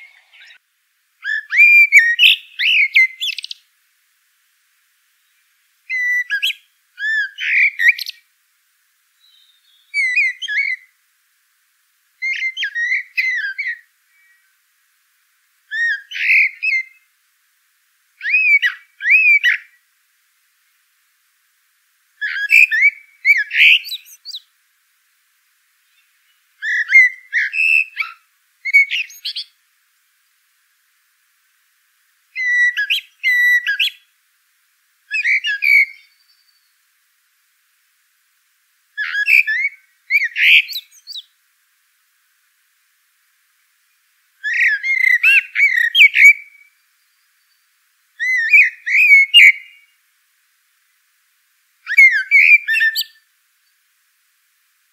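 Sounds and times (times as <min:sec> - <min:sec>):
songbird singing: 0:00.0 - 0:03.8, 0:05.0 - 0:08.4, 0:09.0 - 0:17.2, 0:18.1 - 0:20.0, 0:22.1 - 0:24.6, 0:25.6 - 0:30.8, 0:32.0 - 0:34.2, 0:35.1 - 0:37.1, 0:38.9 - 0:41.4, 0:43.5 - 0:50.0, 0:51.8 - 0:53.9.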